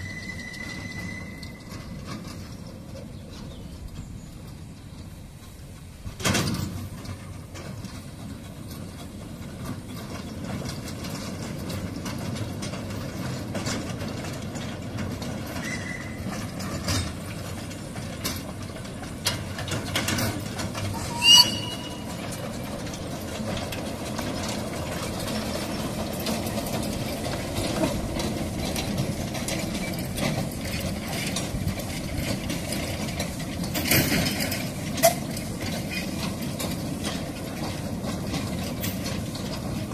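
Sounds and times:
sharp high squeal: 0.0s - 2.1s, 20.9s - 22.3s
train wheels rumbling on rails: 0.0s - 39.9s.

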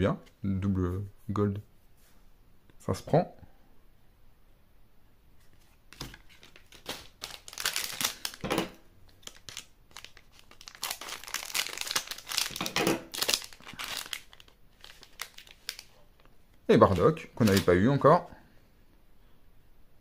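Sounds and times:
foil wrapper crinkling: 5.9s - 8.5s, 9.1s - 17.8s.

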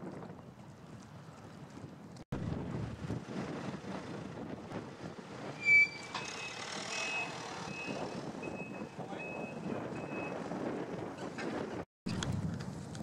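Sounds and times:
reversing alarm beeps: 7.0s - 10.4s.

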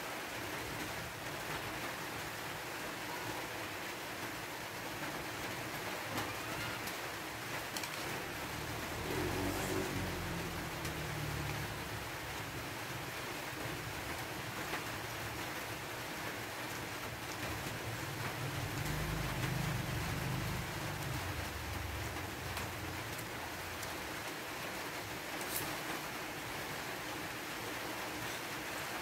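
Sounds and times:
steady hiss: 0.0s - 29.0s.

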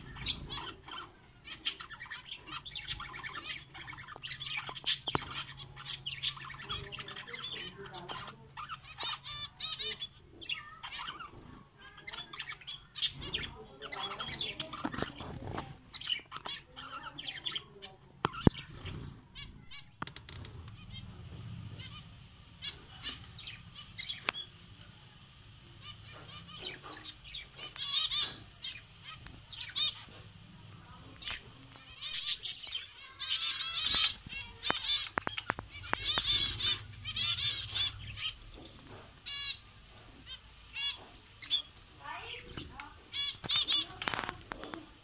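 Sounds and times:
finches chirping: 0.0s - 45.0s
wing flutters: 18.4s - 24.6s.

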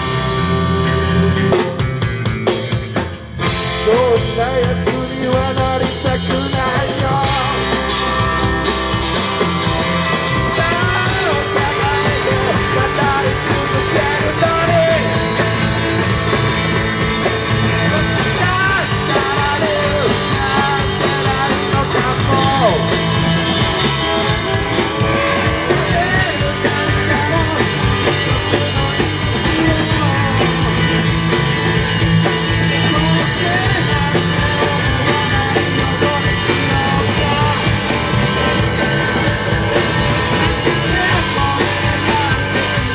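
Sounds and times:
drums: 0.0s - 42.9s
electric guitars: 0.0s - 42.9s
man singing: 3.7s - 8.3s, 10.3s - 16.3s, 17.1s - 31.2s, 32.3s - 38.2s, 39.7s - 42.9s.

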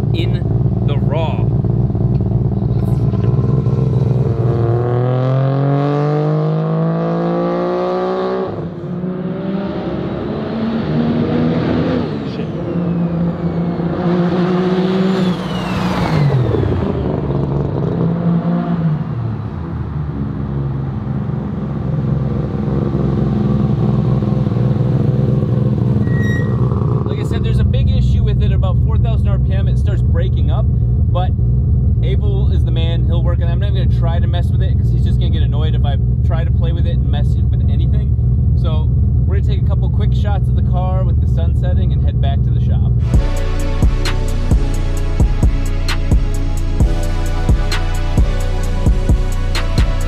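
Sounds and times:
rotary engine revving: 1.5s - 18.8s.

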